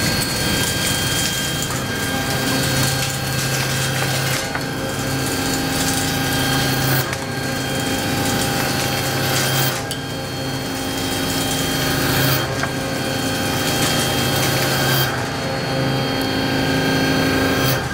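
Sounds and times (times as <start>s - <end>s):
milling cutter cutting metal: 0.0s - 17.9s
spindle hum and whine: 0.0s - 17.9s.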